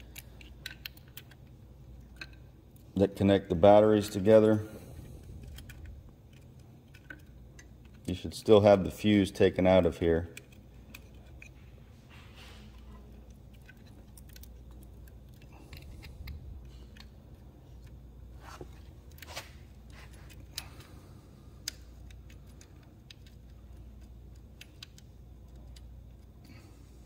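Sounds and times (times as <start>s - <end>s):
metal hardware clicking and clinking: 0.0s - 2.8s, 5.4s - 9.1s, 9.8s - 11.7s, 12.7s - 18.0s, 21.6s - 26.5s
low steady hum: 0.0s - 27.0s.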